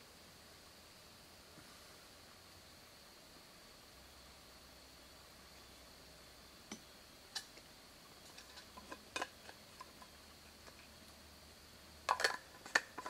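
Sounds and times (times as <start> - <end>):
metal cup clinking: 12.1 - 13.0.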